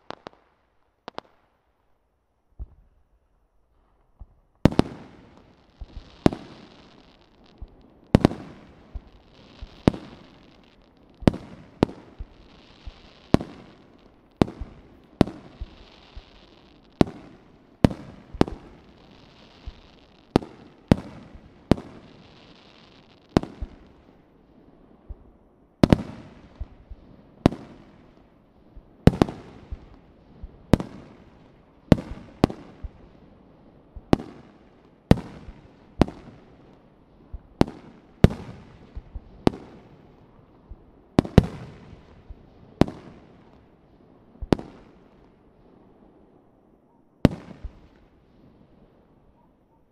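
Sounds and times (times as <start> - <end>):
faint hiss: 0.0 - 49.9
firework shells booming: 4.2 - 22.1.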